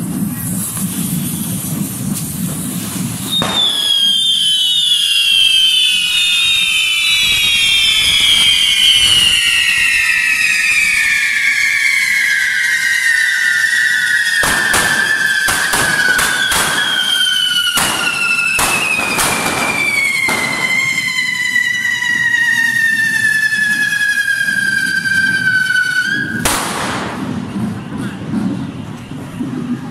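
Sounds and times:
loud firework hiss: 0.0 - 6.1, 9.0 - 28.3
whistling fireworks: 0.0 - 29.9.

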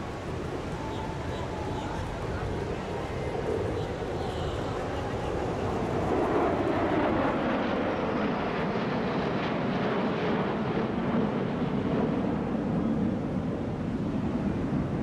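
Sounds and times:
jet engines passing: 0.0 - 15.0.

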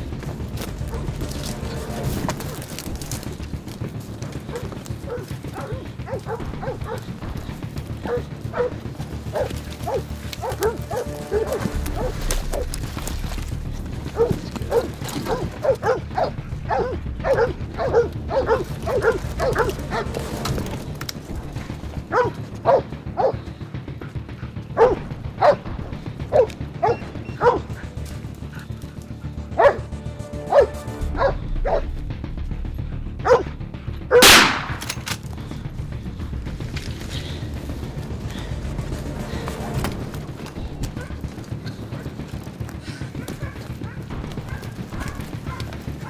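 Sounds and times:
dogs barking: 0.0 - 32.0, 32.8 - 34.7, 37.0 - 46.0
loud rifle shot: 34.2 - 35.0.

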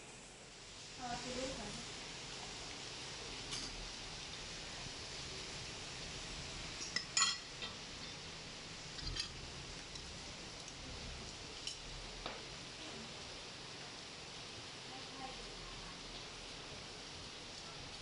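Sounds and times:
metal spoons clinking bowls: 6.8 - 7.8.

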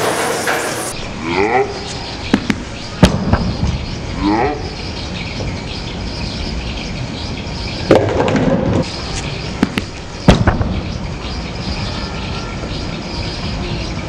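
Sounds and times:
bowling pins crashing: 0.0 - 0.9, 7.9 - 8.9, 9.6 - 11.0.

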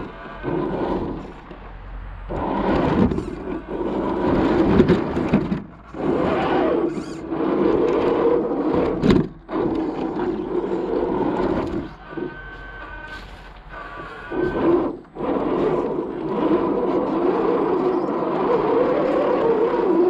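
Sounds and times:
toy car electric motor running: 6.0 - 20.0.

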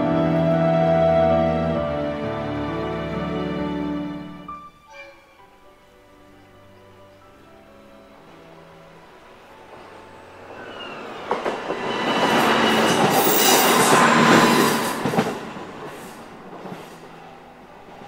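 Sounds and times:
diesel train rumbling past: 5.6 - 18.0
wheels clacking over rail joints: 10.6 - 18.0.

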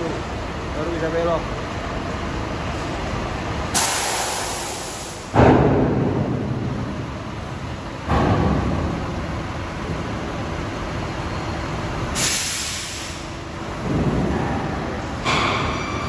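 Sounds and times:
truck engine rumble: 0.0 - 16.0
air brake hiss: 3.7 - 5.4, 12.2 - 13.4.

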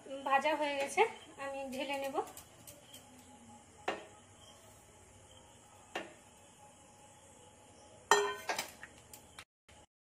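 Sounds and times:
spoon clinking steel pot: 8.1 - 8.7.

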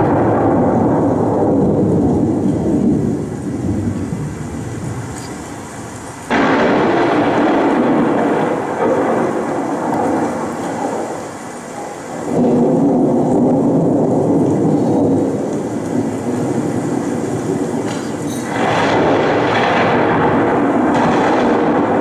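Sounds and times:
noise soundscape over speakers: 0.0 - 22.0.

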